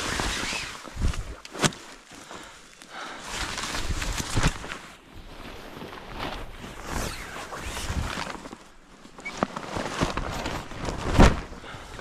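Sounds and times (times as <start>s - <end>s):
fabric rustling and flapping: 0.0s - 2.5s, 3.2s - 12.0s
wind rumble on microphone: 5.2s - 8.5s.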